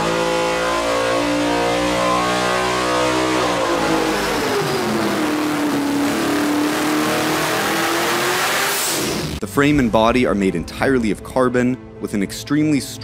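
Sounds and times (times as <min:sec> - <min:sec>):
car engine revving high: 0:00.0 - 0:09.4.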